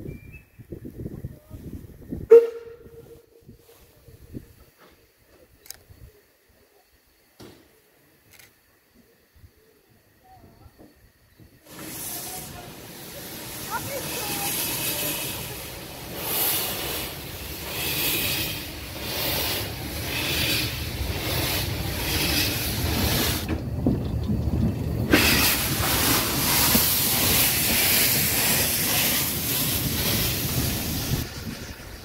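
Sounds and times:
steam hissing from cylinders: 3.2s - 32.0s
steam locomotive chuffing: 11.5s - 32.0s.

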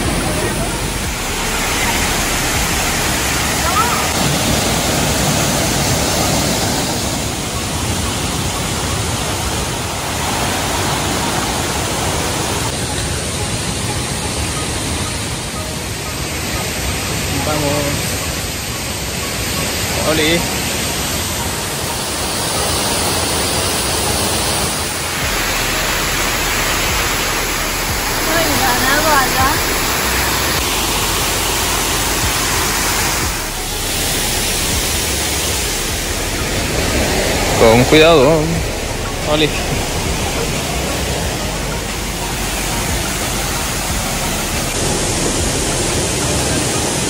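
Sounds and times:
small waterfall rushing: 0.0s - 47.0s
stream running over rocks: 0.0s - 47.0s.

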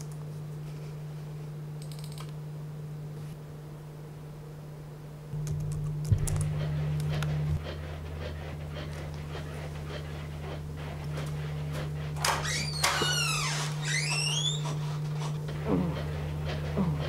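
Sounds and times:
man panting heavily: 15.5s - 17.0s.

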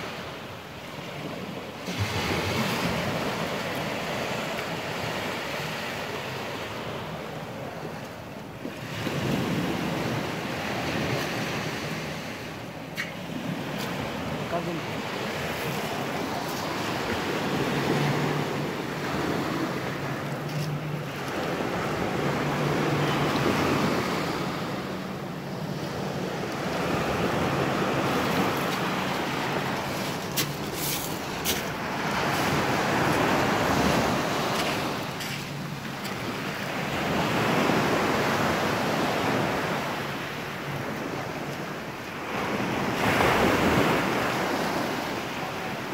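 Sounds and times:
small waves on pebble beach: 0.0s - 7.9s, 25.6s - 45.9s.

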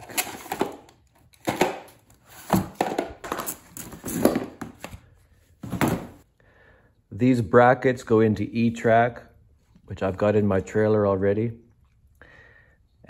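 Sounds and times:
cardboard rustling: 0.0s - 6.2s.

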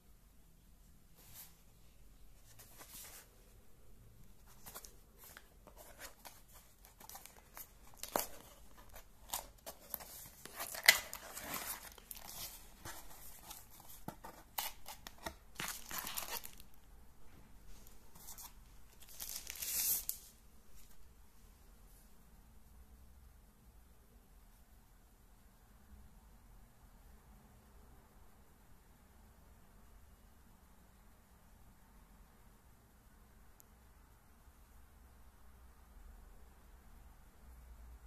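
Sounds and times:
plastic bag crinkling: 14.6s - 16.8s.

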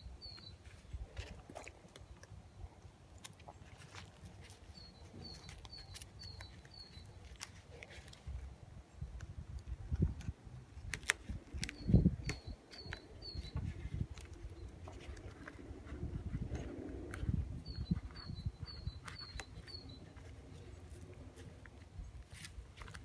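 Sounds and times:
bird chirping: 0.0s - 8.0s, 11.4s - 21.1s
hands handling tape and rubber bands: 0.0s - 23.0s.

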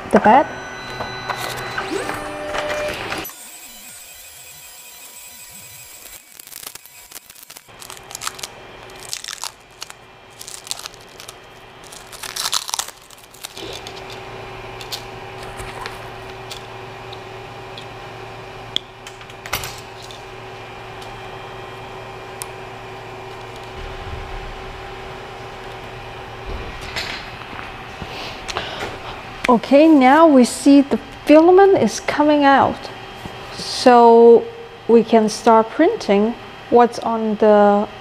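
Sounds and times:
printer fans humming: 0.0s - 38.0s
plastic crinkling: 6.0s - 14.0s.

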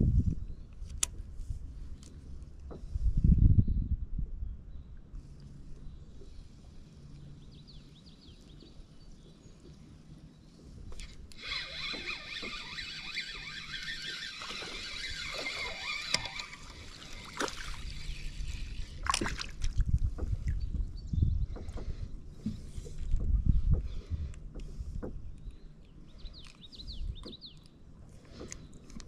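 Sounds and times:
low rumble on microphone: 0.0s - 11.0s, 14.8s - 27.4s
spinning reel whirring: 11.0s - 19.0s.

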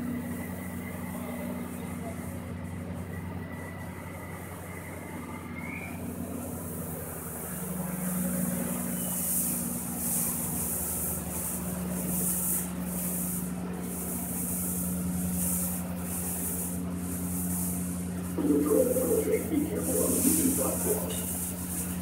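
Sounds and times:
low machine drone: 17.3s - 22.0s
suction hose hissing: 18.4s - 21.8s.

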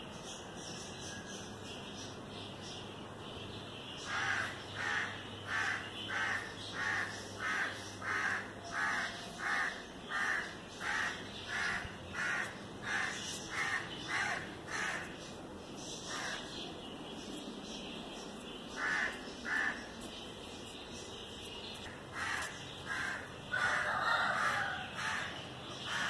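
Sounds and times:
crow cawing: 4.1s - 15.1s, 18.8s - 19.8s, 22.1s - 26.0s.

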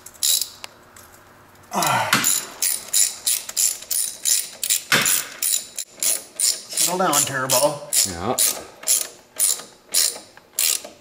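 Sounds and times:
socket ratchet clicking: 0.2s - 0.7s, 2.2s - 7.2s, 7.9s - 11.0s
throaty grunt: 1.7s - 2.5s.

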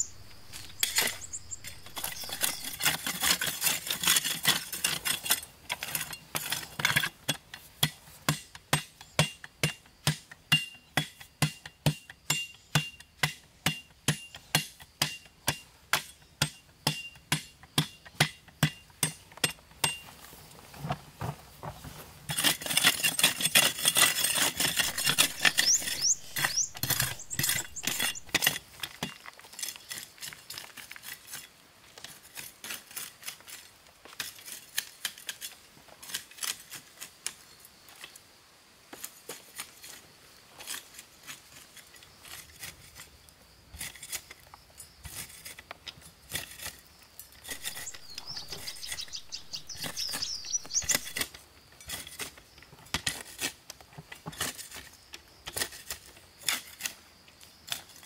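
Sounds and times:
chirps: 0.0s - 2.8s, 24.8s - 28.4s, 47.5s - 51.2s.

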